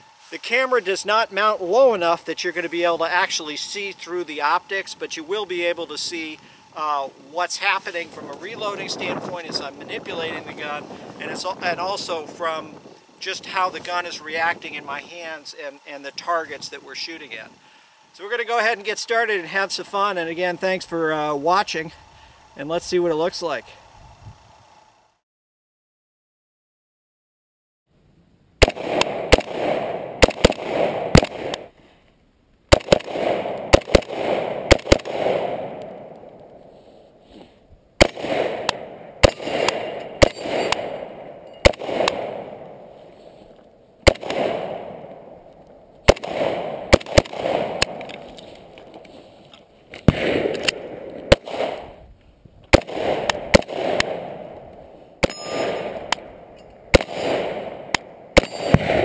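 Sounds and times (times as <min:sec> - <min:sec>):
gunshot echo: 0:28.6 - 0:31.7, 0:32.7 - 0:36.7, 0:38.0 - 0:43.0, 0:44.0 - 0:45.4, 0:46.0 - 0:49.0, 0:50.0 - 0:52.0, 0:52.7 - 0:59.0
rifle firing loud shots: 0:28.6 - 0:31.7, 0:32.7 - 0:36.3, 0:38.0 - 0:43.1, 0:44.0 - 0:45.4, 0:46.0 - 0:49.0, 0:50.0 - 0:52.0, 0:52.7 - 0:54.6, 0:55.2 - 0:59.0.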